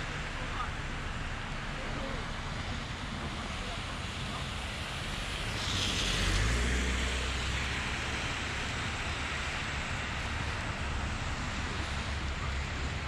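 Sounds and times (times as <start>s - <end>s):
motorcycle road and wind noise: 2.5s - 13.0s
tyre hiss on wet pavement: 3.4s - 12.3s.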